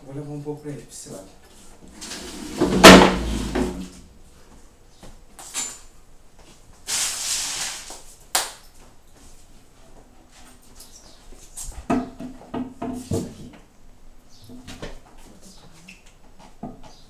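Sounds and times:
panels rustling: 1.4 - 4.6
cabinet panels scraping: 1.8 - 4.1.

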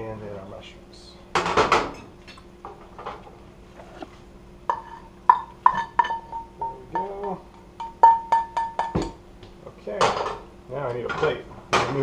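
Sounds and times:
utensil tapping metal cookware: 5.3 - 9.1.

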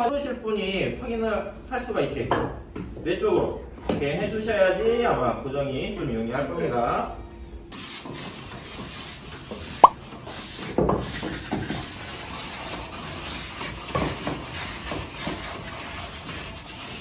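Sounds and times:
hand sanding wood: 13.6 - 17.0.

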